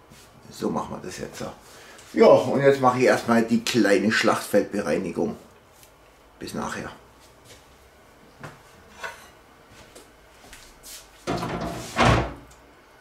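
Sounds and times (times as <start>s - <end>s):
dishes clattering in sink: 11.3s - 12.4s.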